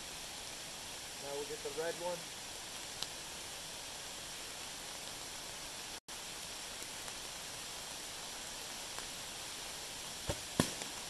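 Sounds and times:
light rain: 0.0s - 11.0s
stream water running: 0.0s - 11.0s.

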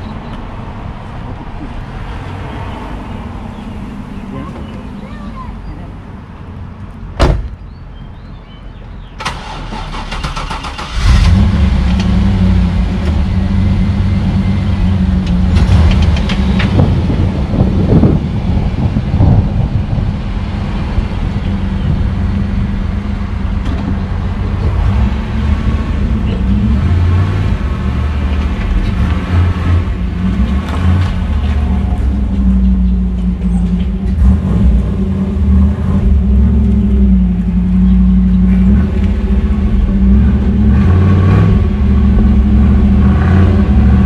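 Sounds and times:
car engine rumbling: 0.0s - 44.0s.

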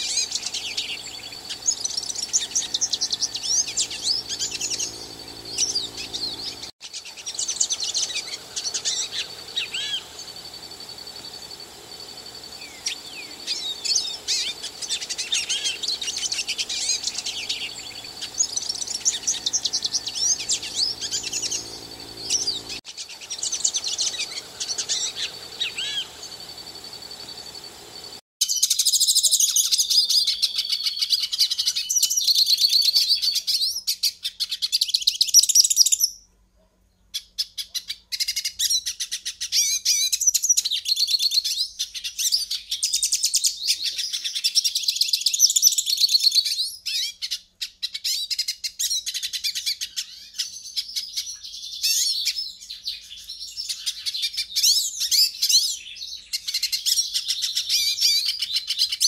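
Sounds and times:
low steady hum: 0.0s - 28.2s
finch singing: 0.0s - 36.2s, 37.2s - 59.0s.

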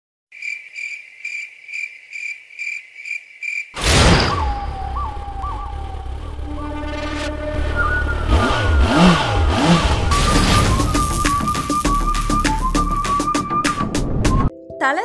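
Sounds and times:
cricket chirping: 0.3s - 5.2s
sudden loud whoosh: 3.8s - 14.5s
low rumble: 4.0s - 13.2s.

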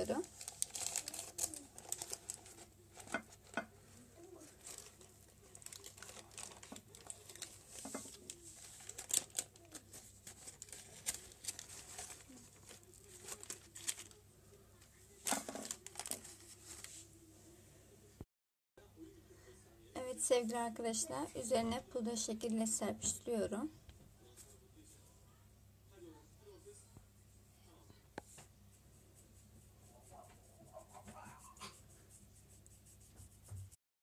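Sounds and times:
baking paper crinkling: 0.0s - 14.2s, 15.1s - 17.1s.

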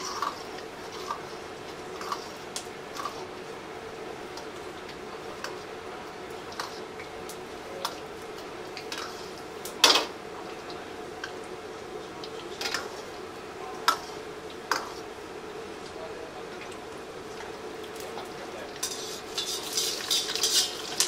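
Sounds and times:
steady hum: 0.0s - 21.0s
metal ladle scraping a wok: 18.8s - 21.0s.

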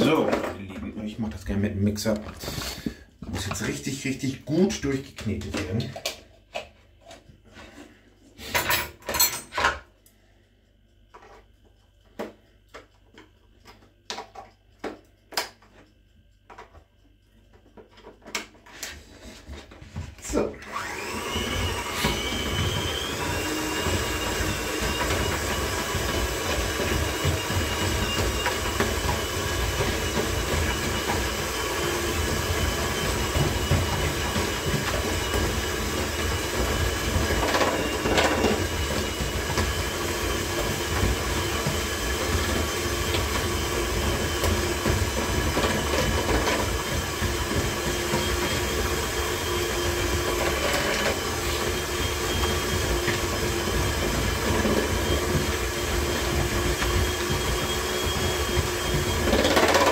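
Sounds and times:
electric mixer whining: 20.2s - 59.9s.

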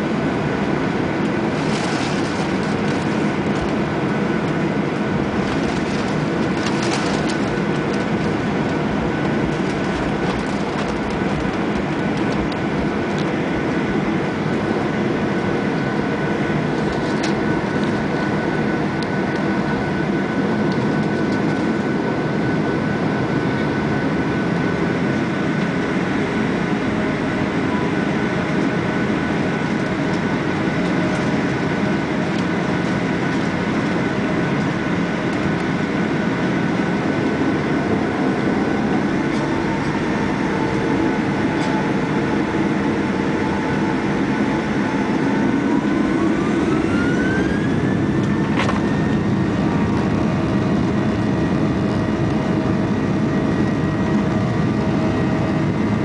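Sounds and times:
jet engines whining: 0.0s - 56.0s
wheels rumbling on runway: 0.0s - 56.0s.

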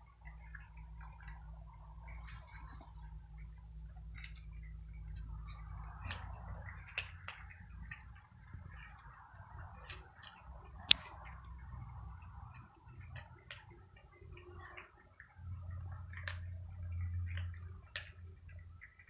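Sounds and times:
cats crunching dry kibble: 0.0s - 19.0s.

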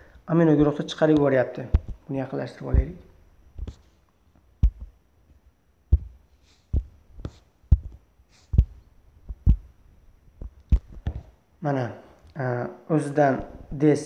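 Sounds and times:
short clicks and thumps: 0.6s - 2.1s, 2.7s - 3.9s, 4.6s - 5.0s, 5.9s - 9.7s, 10.4s - 11.4s.

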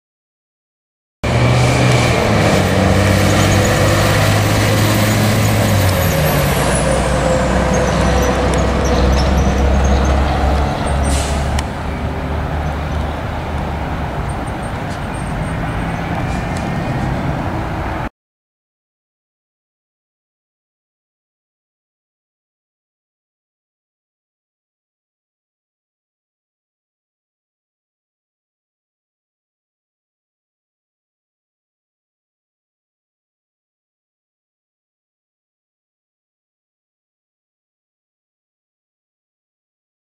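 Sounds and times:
passing road traffic: 1.2s - 18.1s
truck diesel engine driving by: 1.2s - 18.1s.

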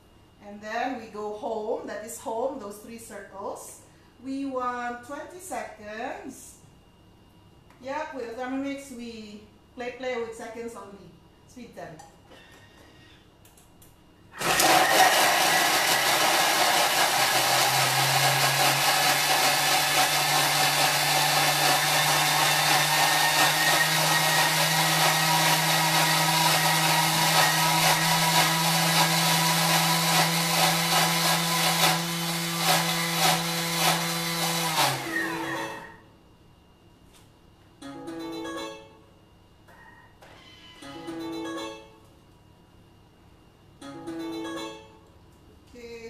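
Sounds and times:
food processor blending: 14.4s - 36.0s.

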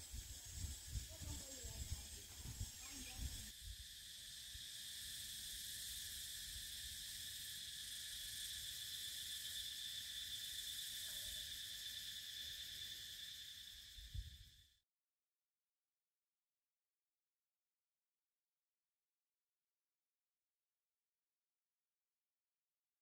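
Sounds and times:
insects droning shrill chorus: 0.0s - 14.8s.

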